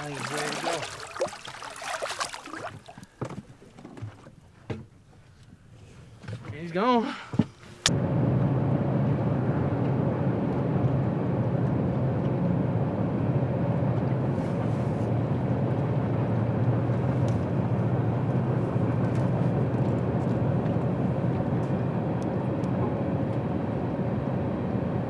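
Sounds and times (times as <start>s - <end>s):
steady engine drone: 7.9s - 25.0s.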